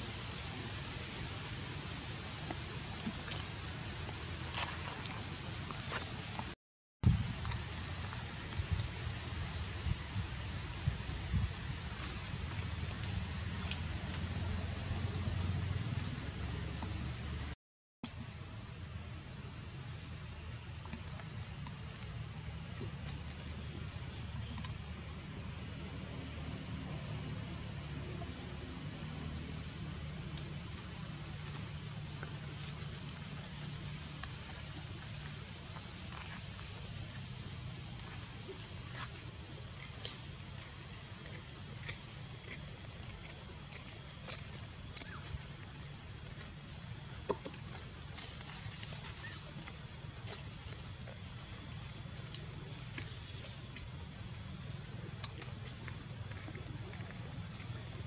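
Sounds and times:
shrill insect drone: 0.0s - 6.0s, 18.0s - 58.0s.

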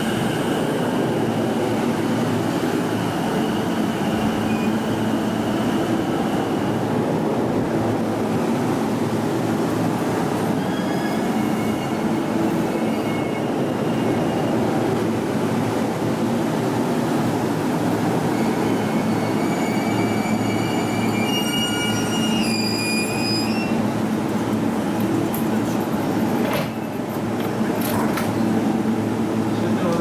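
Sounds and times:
train wheels and motors rumbling: 0.0s - 30.0s
high brake squealing: 10.5s - 12.1s, 18.3s - 23.8s.

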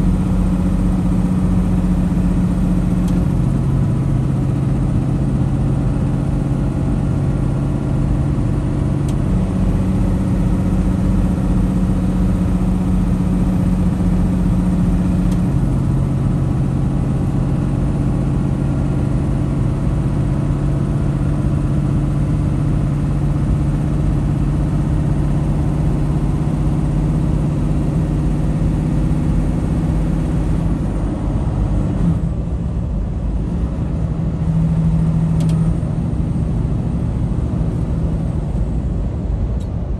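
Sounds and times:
road noise: 0.0s - 39.9s
truck engine drone: 0.0s - 39.9s.

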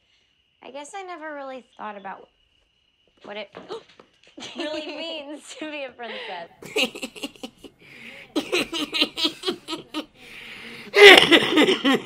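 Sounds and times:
man laughing hard: 6.6s - 12.0s.

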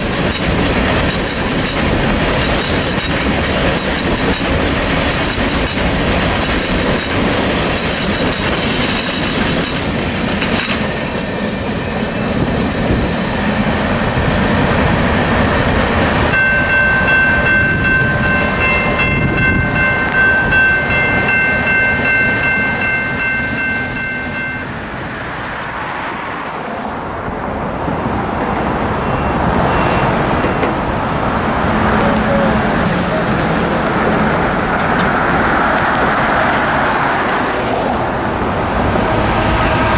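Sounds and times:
train wheels clickety-clack: 0.0s - 24.4s, 30.3s - 30.8s, 32.4s - 38.0s
approaching locomotive rumble: 0.0s - 39.9s
locomotive air horn: 39.1s - 39.9s.

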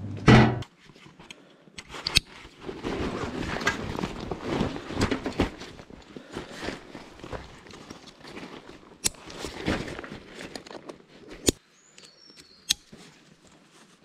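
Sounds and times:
loud knock: 0.3s - 0.6s
camping gear rustling and clicking: 0.7s - 14.0s.

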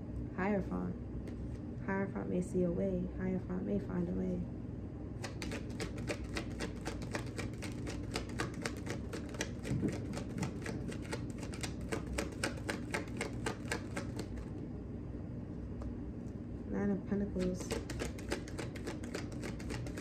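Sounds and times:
cards being shuffled: 5.2s - 14.6s, 17.4s - 20.0s.

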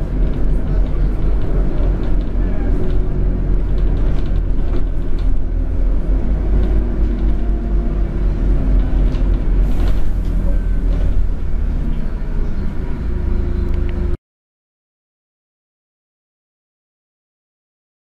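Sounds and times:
bus engine drone: 0.0s - 14.2s.

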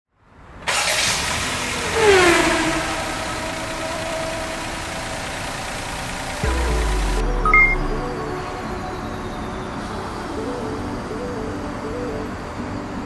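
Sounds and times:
car engine starting and idling: 0.6s - 10.3s
music with deep bass: 6.4s - 9.6s.

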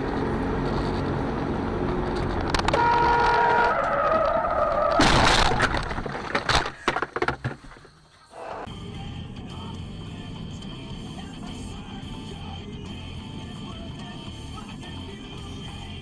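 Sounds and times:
car engine and road noise: 0.0s - 16.0s
tyres screeching: 2.7s - 5.8s
knocks and rattles: 4.8s - 8.0s.

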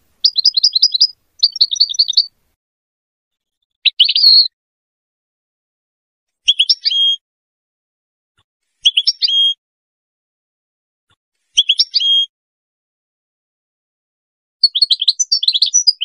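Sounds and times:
goldfinch singing: 0.0s - 2.4s, 3.8s - 4.5s, 6.5s - 7.2s, 8.8s - 9.6s.

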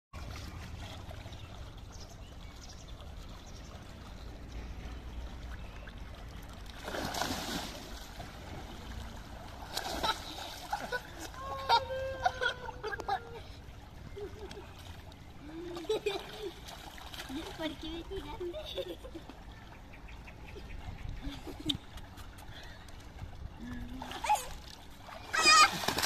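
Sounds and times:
pool water splashing: 0.2s - 26.0s
steady low rumble: 7.7s - 11.1s
high-pitched cries: 25.3s - 25.9s.

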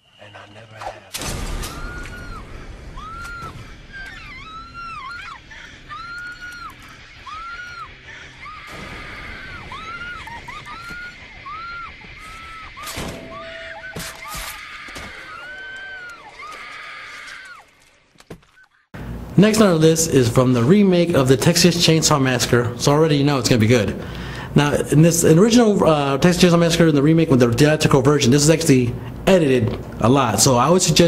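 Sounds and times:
woman screaming: 1.6s - 17.7s.

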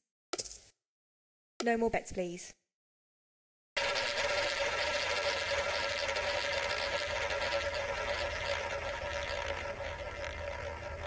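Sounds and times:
faint hum: 3.8s - 11.0s
roulette ball rolling: 3.8s - 11.0s.

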